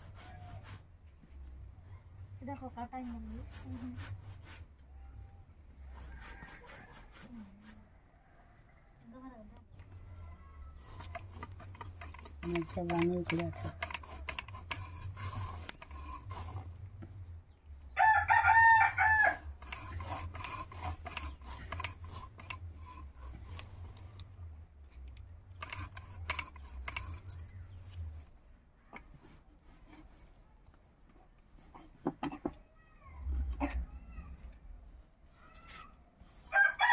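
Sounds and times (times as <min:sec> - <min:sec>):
fish scraped on a blade: 0:00.0 - 0:00.9, 0:03.0 - 0:04.7, 0:05.8 - 0:07.9, 0:10.7 - 0:16.9, 0:18.0 - 0:24.3, 0:25.6 - 0:30.4
rooster crowing: 0:05.8 - 0:09.1, 0:18.0 - 0:20.2, 0:36.5 - 0:36.9.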